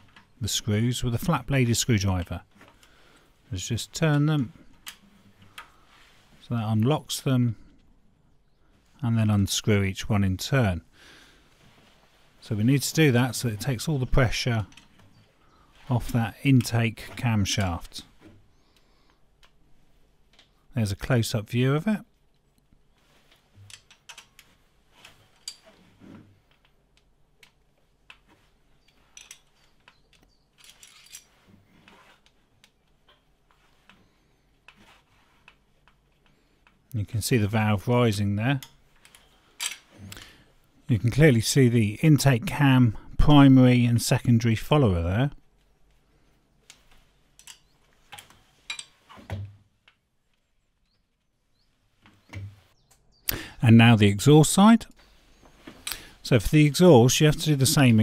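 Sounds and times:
tools clicking and scraping on metal: 23.3s - 36.9s, 38.6s - 40.4s, 46.6s - 49.2s
faint bird chirps: 28.7s - 30.6s.

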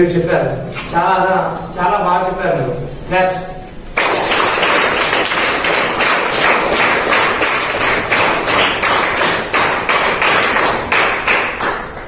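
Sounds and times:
rhythmic group clapping: 3.8s - 12.0s.

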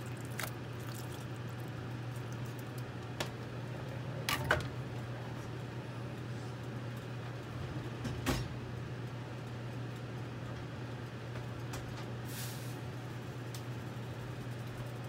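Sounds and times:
steady low hum: 0.0s - 15.0s
short hiss: 12.3s - 12.8s.

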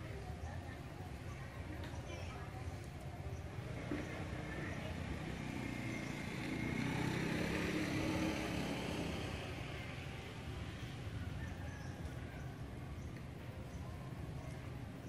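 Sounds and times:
outdoor background noise: 0.0s - 15.0s
vehicle engine passing by: 3.6s - 13.0s.

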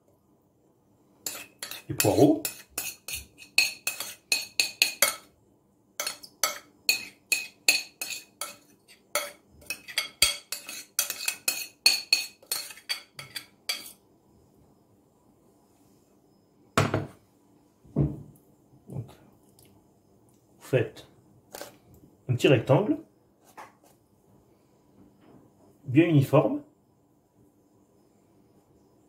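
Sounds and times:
spoon clinking in glass bowl: 1.3s - 5.3s, 6.0s - 14.0s.

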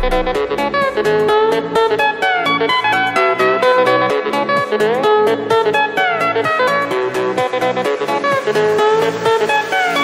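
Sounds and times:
plucked guitar music: 0.0s - 6.6s.

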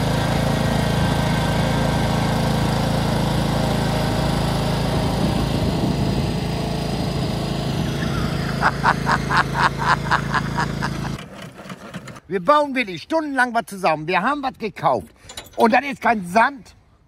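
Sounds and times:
lawn mower engine running: 0.0s - 12.3s, 15.1s - 15.8s.

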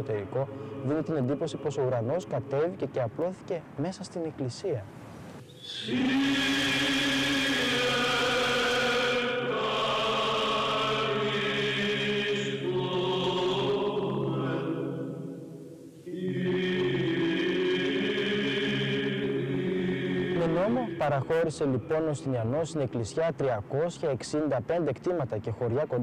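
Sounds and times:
male choir chanting: 0.0s - 3.1s, 5.6s - 22.3s.

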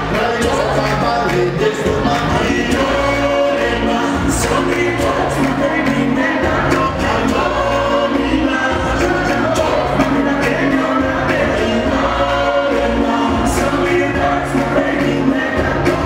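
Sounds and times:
heavy bass: 0.0s - 16.0s
people singing together: 0.0s - 16.0s.

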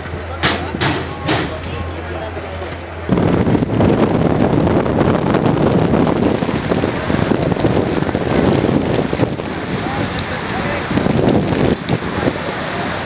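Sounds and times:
boat running: 0.0s - 13.0s
water noise: 0.0s - 13.0s
wind buffeting microphone: 2.8s - 13.0s.

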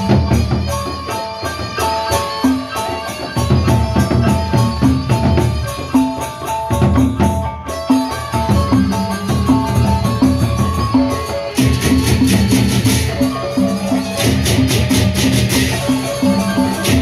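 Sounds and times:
hand cymbals clashing: 0.0s - 17.0s
pitched bronze melody: 0.0s - 17.0s
barrel drums beaten: 8.4s - 17.0s.

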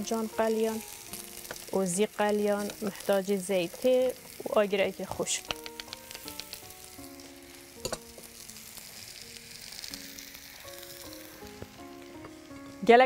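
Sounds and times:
oil sizzling in a frying pan: 0.0s - 13.0s
soft background music: 0.0s - 13.0s.

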